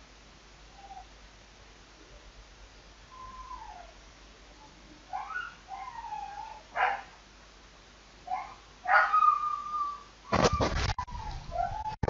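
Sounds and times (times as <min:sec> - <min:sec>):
animal cries gliding in pitch: 0:03.1 - 0:04.0, 0:08.3 - 0:10.1.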